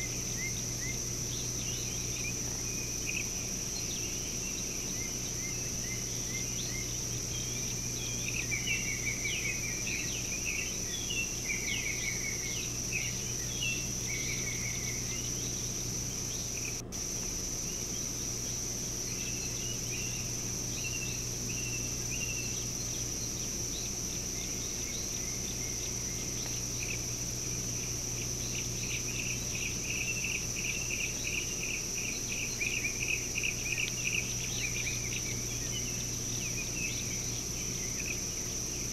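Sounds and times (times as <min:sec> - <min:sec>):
insect drone: 0:00.0 - 0:38.9
low steady hum: 0:00.0 - 0:38.9.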